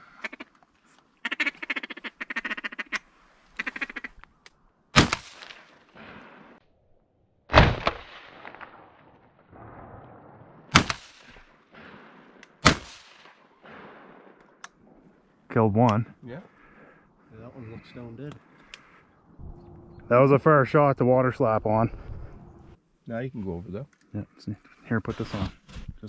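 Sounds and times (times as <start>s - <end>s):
ducks quacking: 1.2s - 3.0s, 3.6s - 4.2s
shotgun blasts echoing: 5.0s - 6.6s, 7.5s - 14.6s.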